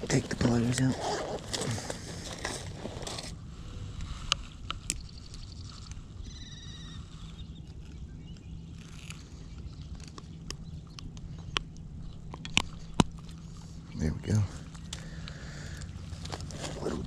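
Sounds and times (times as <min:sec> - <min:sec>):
clicks and scraping of handling: 0:00.0 - 0:03.4, 0:07.7 - 0:13.8
steady low rumble: 0:00.0 - 0:17.0.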